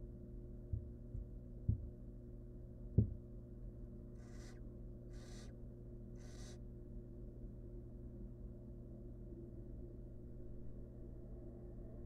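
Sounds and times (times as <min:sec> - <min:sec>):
steady low hum: 0:00.0 - 0:12.0
soft low thumps: 0:00.7 - 0:02.0, 0:02.9 - 0:03.3
owl nestlings hissing: 0:04.2 - 0:05.5, 0:06.2 - 0:06.6.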